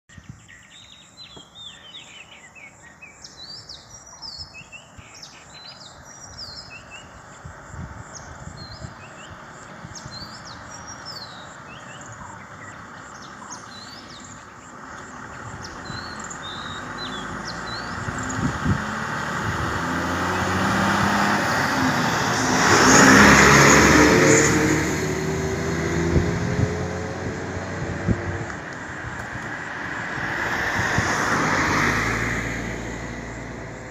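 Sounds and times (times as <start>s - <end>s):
birds chirping: 0.1s - 33.9s
vehicle passing by: 6.9s - 33.9s.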